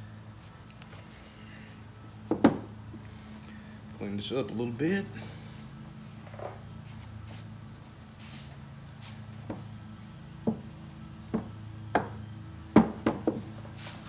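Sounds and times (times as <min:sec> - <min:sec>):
steady low hum: 0:00.0 - 0:14.0
sharp handling knocks: 0:02.3 - 0:02.7, 0:11.3 - 0:13.5.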